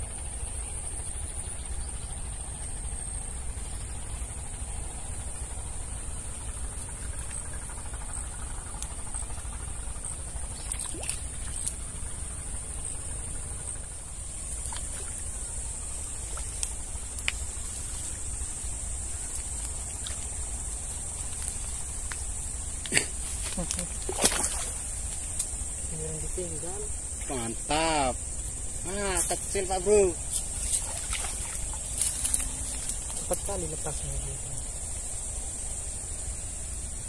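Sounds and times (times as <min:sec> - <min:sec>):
insect chorus buzzing: 0:00.0 - 0:37.0
faint clicks: 0:16.3 - 0:17.5.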